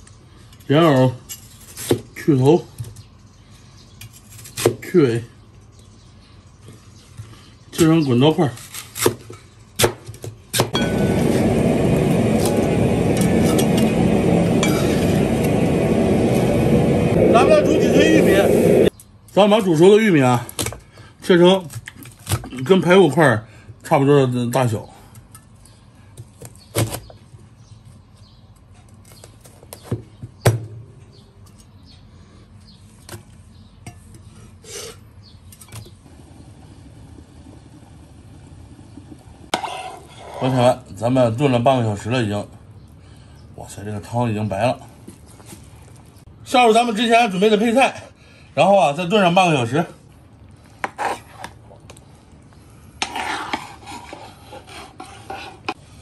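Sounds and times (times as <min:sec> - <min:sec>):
metal ladle scraping in pot: 0:39.5 - 0:40.7, 0:53.0 - 0:55.8.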